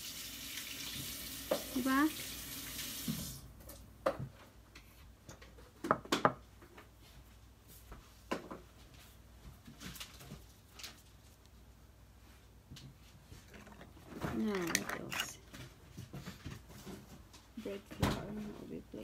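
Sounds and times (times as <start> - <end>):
bowls and utensils clinking: 13.5 - 15.6.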